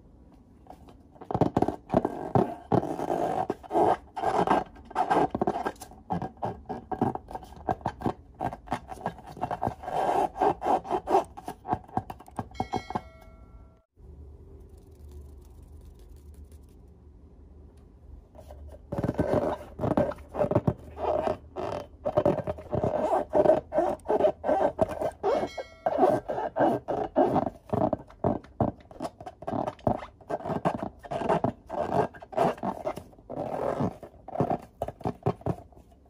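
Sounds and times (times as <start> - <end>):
rubber balloon squeaking: 18.9 - 35.5.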